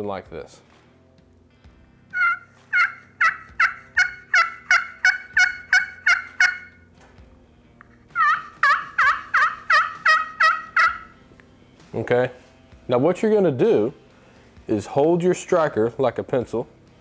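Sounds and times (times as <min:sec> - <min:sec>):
friction turkey call yelps: 0:02.1 - 0:06.9, 0:08.1 - 0:11.2.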